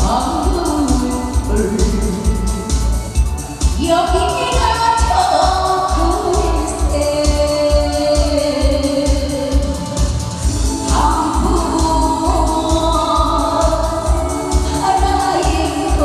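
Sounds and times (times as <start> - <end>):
woman singing into a microphone: 0.0 - 3.1, 3.7 - 16.0
amplified backing track with bass beat: 0.0 - 16.0.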